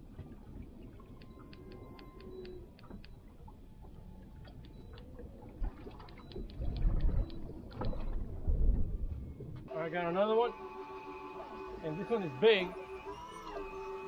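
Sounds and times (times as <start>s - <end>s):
water lapping against hull: 0.0s - 9.7s
light ticks and clicks: 1.1s - 5.3s, 5.9s - 8.2s
low thumps and rumbles: 6.2s - 9.7s.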